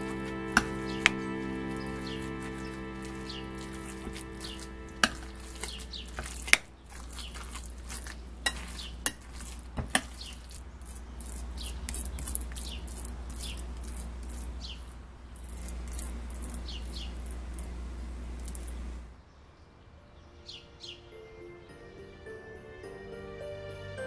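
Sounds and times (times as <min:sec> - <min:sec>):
birds chirping: 0:00.0 - 0:09.1, 0:10.1 - 0:13.7, 0:14.6 - 0:17.7
utensil mashing wet filling: 0:03.8 - 0:14.5.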